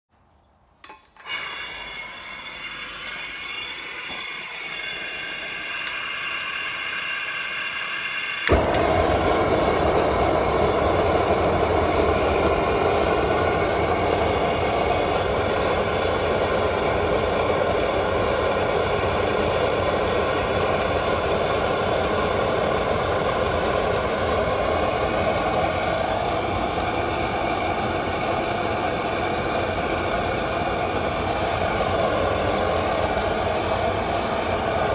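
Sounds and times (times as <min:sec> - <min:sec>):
gas hissing with faint whistle: 0:01.2 - 0:34.9
roaring gas flame: 0:01.2 - 0:34.9
burner igniting pop: 0:08.4 - 0:17.4.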